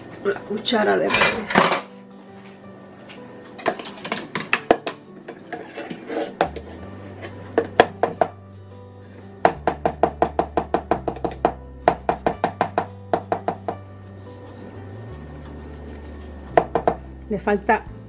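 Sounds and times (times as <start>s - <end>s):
plucked background music: 0.0s - 18.0s
spoon scraping plastic jar: 5.3s - 7.8s.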